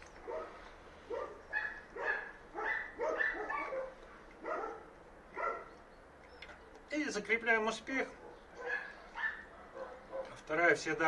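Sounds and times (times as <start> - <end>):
dog barking: 0.2 - 5.7, 8.2 - 10.4.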